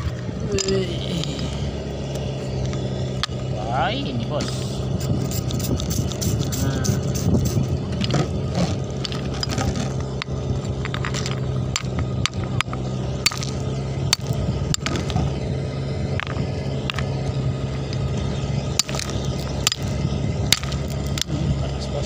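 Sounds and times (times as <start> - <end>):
engine humming: 0.0 - 22.0
rock hammer striking stones: 9.1 - 15.0, 18.8 - 19.9.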